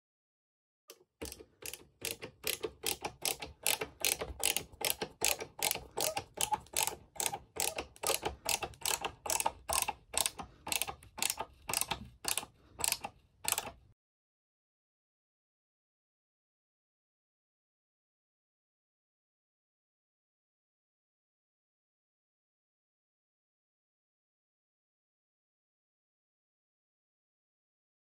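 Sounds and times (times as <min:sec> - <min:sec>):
ratcheting screwdriver clicking: 0:01.2 - 0:13.8.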